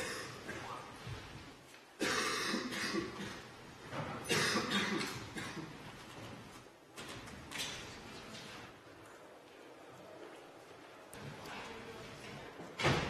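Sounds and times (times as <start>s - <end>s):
person coughing: 0.0s - 0.8s, 2.0s - 3.5s, 4.2s - 5.7s.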